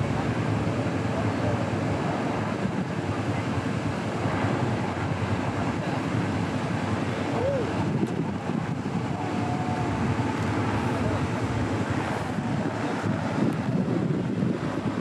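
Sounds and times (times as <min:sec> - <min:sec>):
crowd chatter: 0:00.0 - 0:14.0
wind on microphone: 0:00.0 - 0:15.0.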